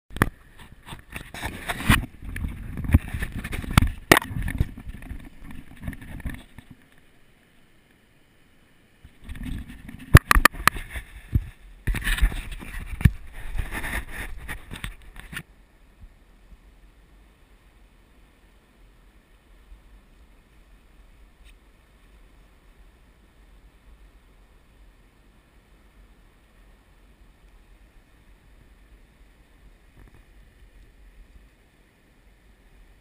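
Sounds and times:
jacket fabric rubbing on camera: 0.5 - 6.6, 9.2 - 15.4.

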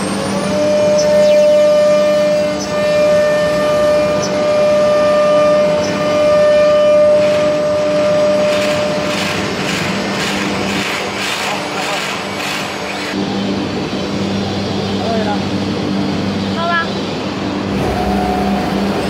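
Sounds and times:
router spindle whine: 0.0 - 16.5, 17.4 - 19.0
bit cutting wood: 6.8 - 13.2.

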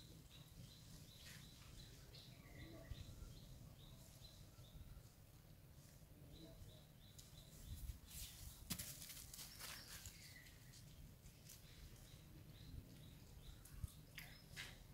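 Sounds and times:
rustling: 8.0 - 12.0.

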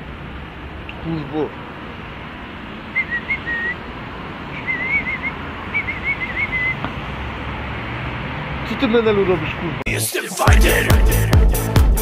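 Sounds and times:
high wavering whistle: 3.0 - 3.8, 4.5 - 6.8.

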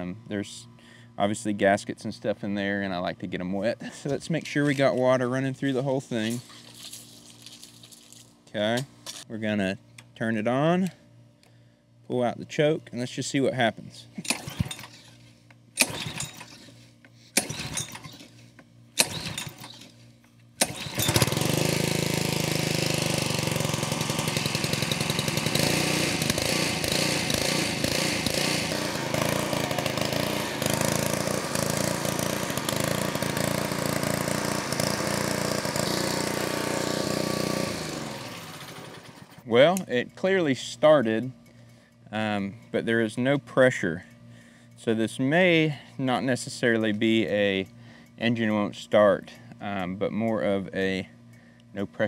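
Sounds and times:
small engine running: 14.2 - 39.5
recoil starter pulls: 14.2 - 40.1.

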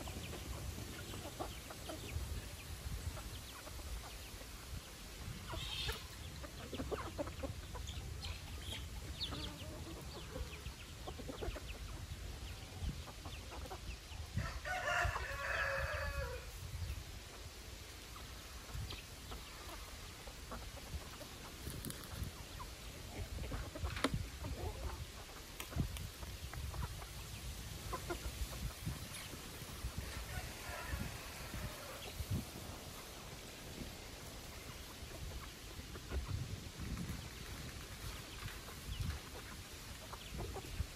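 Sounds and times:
chickens clucking: 0.0 - 40.9
rooster crowing: 14.4 - 16.5, 30.1 - 32.1.

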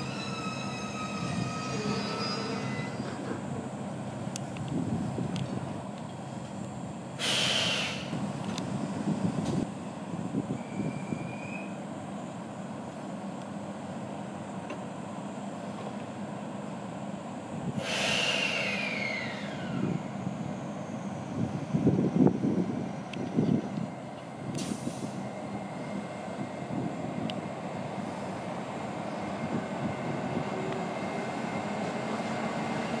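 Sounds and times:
train equipment humming: 0.0 - 33.0
air brakes hissing: 7.2 - 8.4, 17.8 - 20.0, 24.6 - 25.2.

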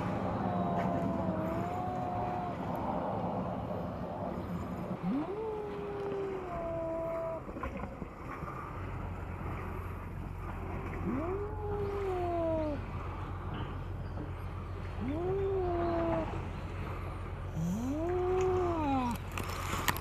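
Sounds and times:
cats yowling: 0.0 - 3.0, 5.0 - 7.5
low steady hum: 0.0 - 20.0.

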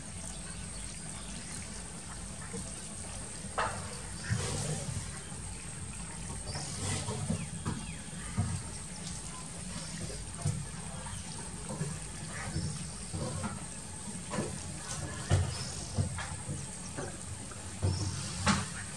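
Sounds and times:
ducks quacking: 1.9 - 8.6, 10.9 - 13.7.

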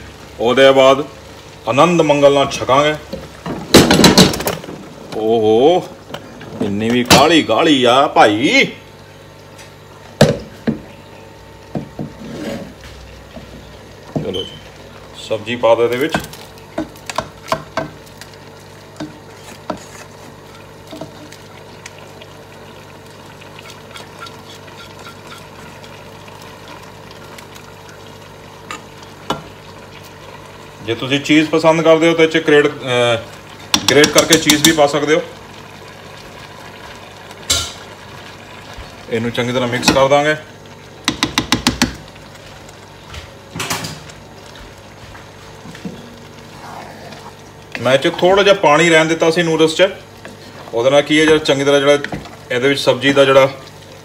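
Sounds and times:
steady background hum: 0.0 - 54.0
utensil scraping a pan: 12.1 - 12.8, 23.6 - 25.8
spatula tapping on a pot: 41.0 - 42.0.

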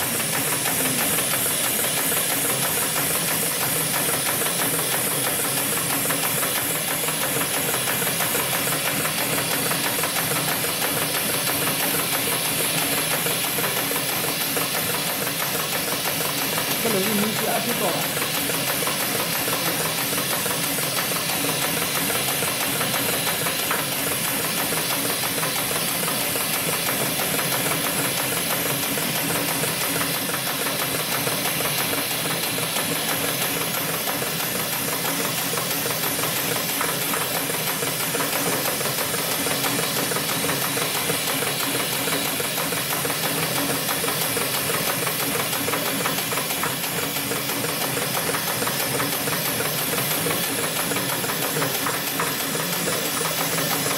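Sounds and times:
sewing machine chatter: 0.0 - 53.9.

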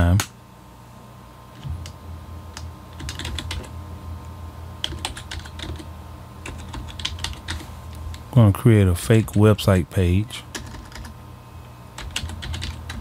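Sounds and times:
typing on computer keyboard: 3.0 - 3.7, 4.8 - 7.6, 10.5 - 11.1, 12.0 - 13.0.

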